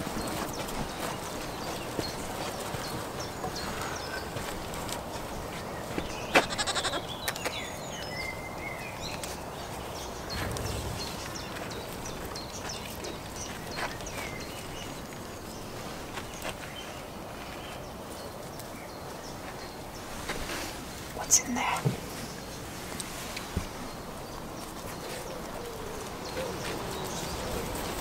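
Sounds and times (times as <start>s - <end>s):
goat hooves clopping: 0.0s - 3.7s
small birds chirping: 0.2s - 20.3s, 21.0s - 22.8s.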